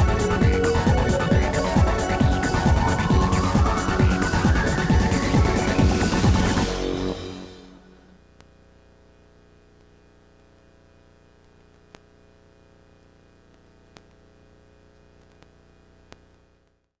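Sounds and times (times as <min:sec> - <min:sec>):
faint electrical hum: 0:07.6 - 0:17.0
faint sharp clicks: 0:11.4 - 0:12.1, 0:13.4 - 0:14.2, 0:14.9 - 0:17.0.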